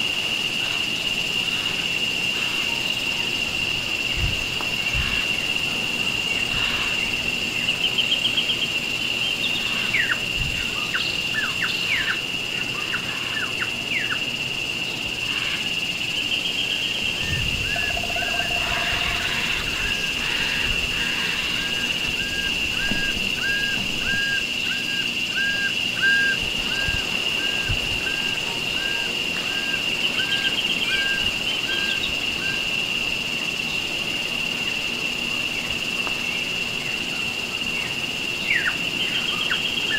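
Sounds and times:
high insect drone: 0:00.0 - 0:39.9
birds calling: 0:15.3 - 0:24.3.

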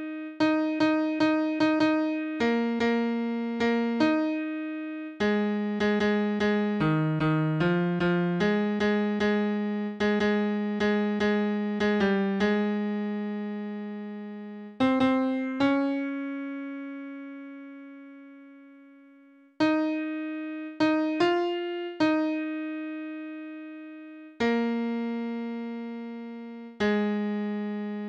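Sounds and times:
piano single notes: 0:14.8 - 0:28.0.

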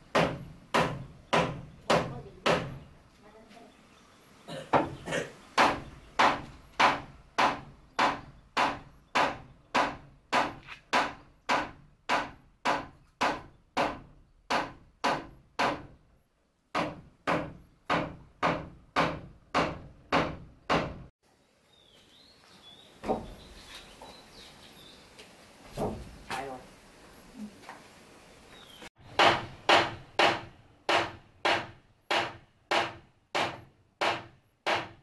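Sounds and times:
hammer striking wood: 0:00.1 - 0:02.8, 0:05.6 - 0:16.0, 0:16.7 - 0:21.1, 0:29.0 - 0:35.0.

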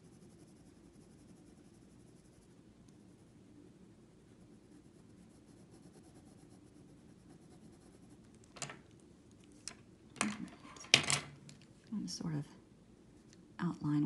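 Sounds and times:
pencil scratching on paper: 0:00.0 - 0:03.2, 0:04.4 - 0:08.3.

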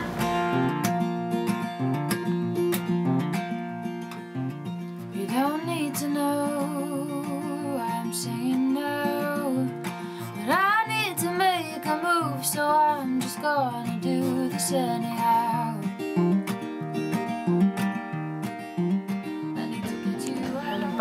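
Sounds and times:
acoustic guitar strumming: 0:00.0 - 0:21.0
woman singing wordless melody: 0:05.1 - 0:15.9, 0:19.4 - 0:21.0.

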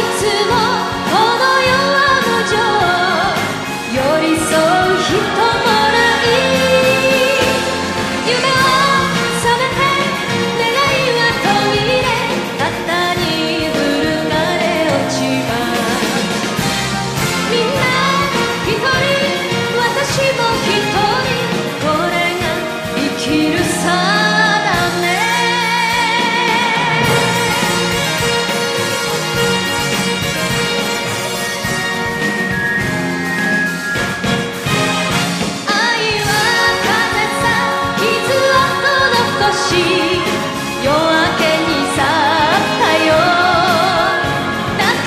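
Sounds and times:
band playing with vibrato melody: 0:00.0 - 0:45.0
pop ballad music: 0:00.0 - 0:45.0.

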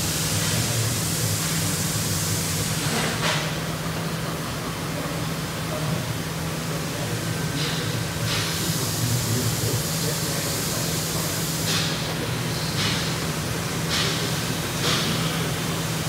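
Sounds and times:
laser cutter hissing: 0:00.0 - 0:03.5, 0:06.7 - 0:16.0.

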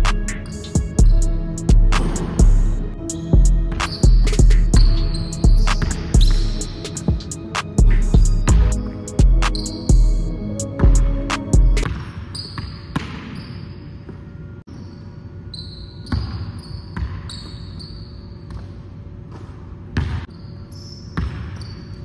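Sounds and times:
sneaker squeaks: 0:00.4 - 0:01.1, 0:03.2 - 0:06.6, 0:09.5 - 0:10.0, 0:11.8 - 0:22.0
basketball bouncing on wooden floor: 0:20.0 - 0:20.3.

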